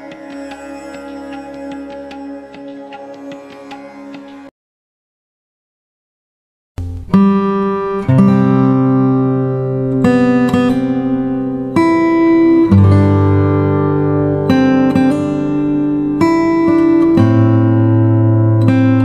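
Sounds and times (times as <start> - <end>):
acoustic guitar chords: 6.8 - 19.0.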